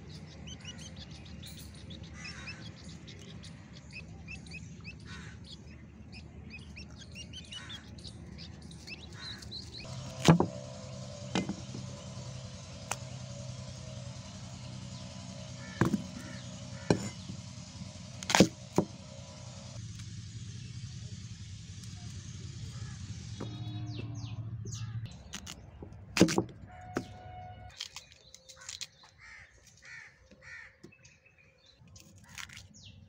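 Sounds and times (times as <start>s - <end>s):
knife chopping on wood: 15.8s - 16.1s.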